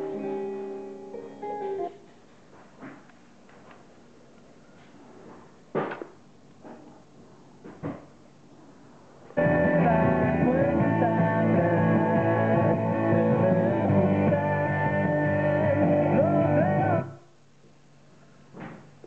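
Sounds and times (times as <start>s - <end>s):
song with singing from speaker: 9.4s - 17.2s.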